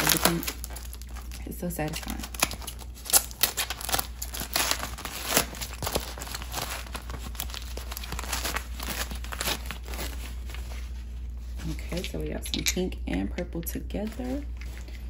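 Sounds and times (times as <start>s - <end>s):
packing wrap crinkling and tearing: 0.0s - 12.3s.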